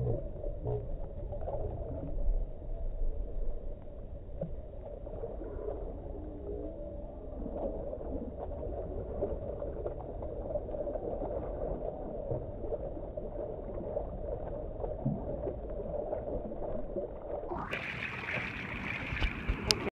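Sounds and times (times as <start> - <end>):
water sloshing and gurgling: 0.0 - 19.9
small splashes: 7.1 - 19.9.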